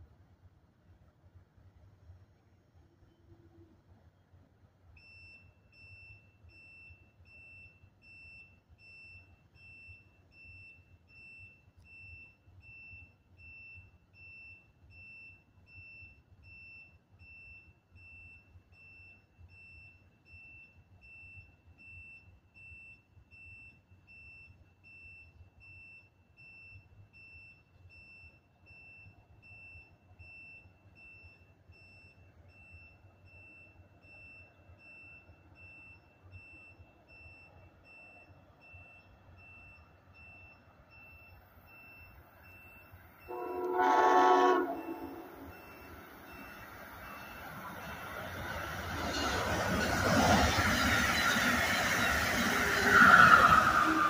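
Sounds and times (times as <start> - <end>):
electronic alarm beeping: 5.0 - 54.0.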